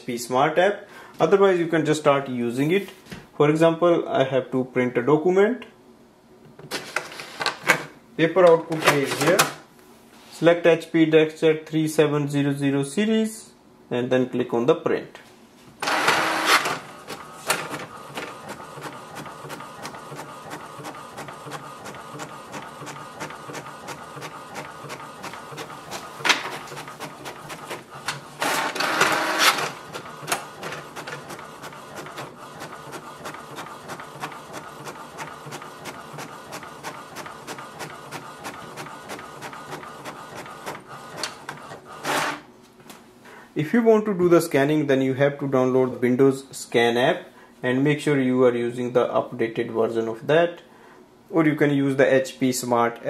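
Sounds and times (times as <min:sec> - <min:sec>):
printer carriage whirring and ticking: 0:15.8 - 0:42.4
printer paper feed whirring: 0:15.8 - 0:42.4.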